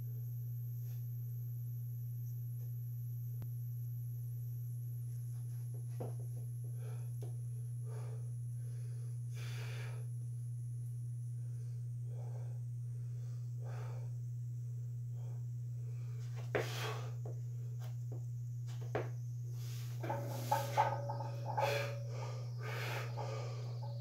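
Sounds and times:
steady low hum: 0:00.0 - 0:24.0
man breathing and sniffing: 0:16.0 - 0:17.3, 0:19.6 - 0:24.0.

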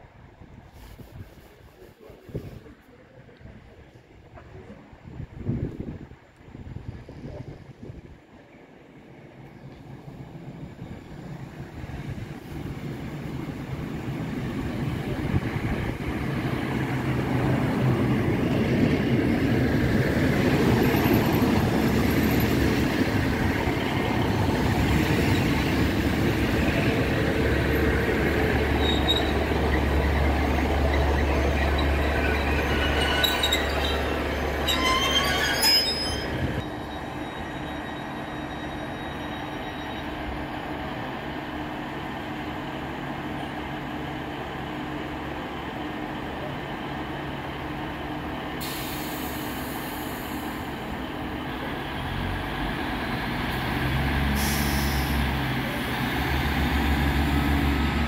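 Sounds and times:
diesel train engines: 0:00.0 - 0:58.0
train wheels on rails: 0:09.3 - 0:58.0
brakes squealing: 0:20.4 - 0:40.5.

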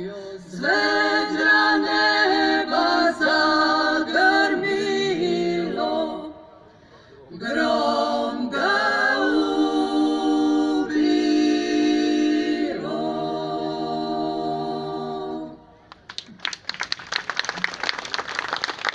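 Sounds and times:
women singing a cappella harmony: 0:00.0 - 0:06.6, 0:07.3 - 0:15.8
audience applauding: 0:15.9 - 0:18.9.

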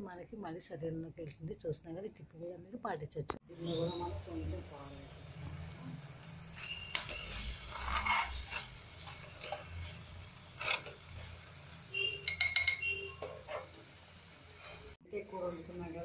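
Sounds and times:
metal spoon scraping pan: 0:06.6 - 0:15.0.

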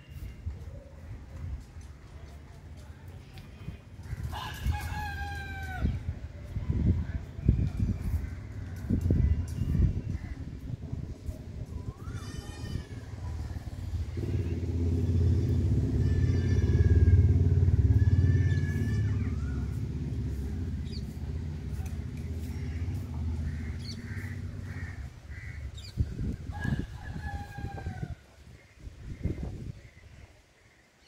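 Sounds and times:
birds chirping: 0:11.2 - 0:28.0
vehicle engine passing by: 0:13.0 - 0:25.6.

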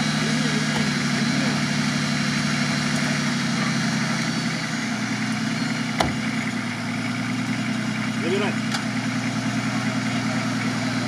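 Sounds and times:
suv engine idling: 0:00.0 - 0:11.0.

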